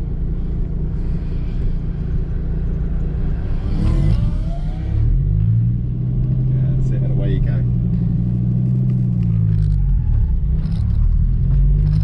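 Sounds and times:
car engine idling: 0.0 - 3.7.

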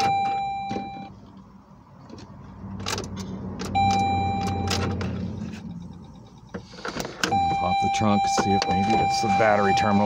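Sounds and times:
electronic beep in a car: 0.0 - 1.2, 3.7 - 10.0.

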